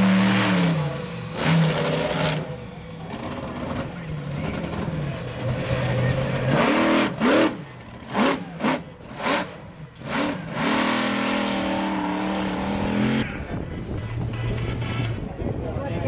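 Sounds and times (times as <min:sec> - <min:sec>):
monster truck engine revving: 0:00.0 - 0:15.4.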